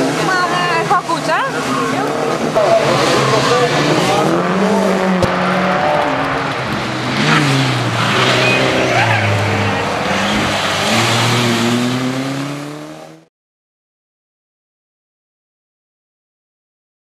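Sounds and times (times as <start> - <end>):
rally car engine revving past: 1.5 - 13.3.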